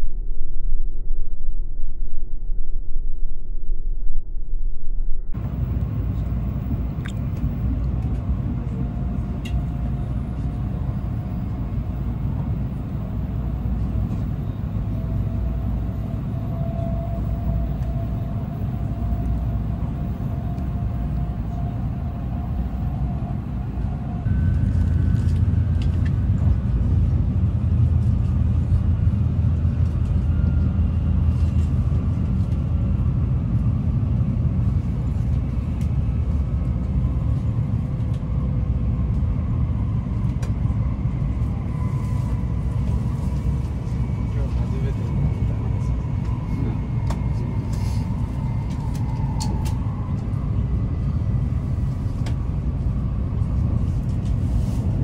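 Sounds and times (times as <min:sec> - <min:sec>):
faint whine: 0:00.0 - 0:07.3, 0:24.2 - 0:26.9
train cabin rumble: 0:04.9 - 0:55.0.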